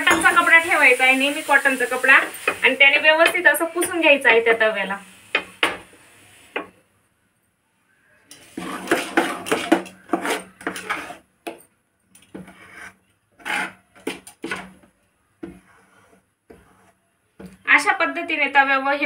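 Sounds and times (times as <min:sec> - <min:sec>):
ladle stirring in a metal pot: 0:08.3 - 0:11.3.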